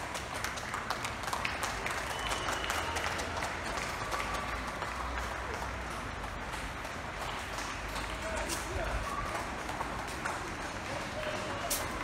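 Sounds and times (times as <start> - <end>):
crowd clapping: 0.0 - 12.0
people cheering: 1.3 - 5.9, 7.3 - 12.0.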